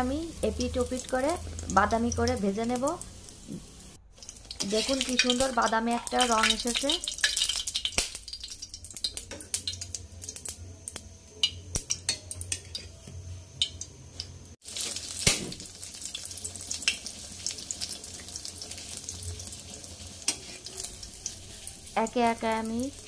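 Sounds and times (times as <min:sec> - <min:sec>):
bread frying in hot oil: 0:00.0 - 0:23.0
oil pops and crackles: 0:06.2 - 0:12.0, 0:14.8 - 0:15.8.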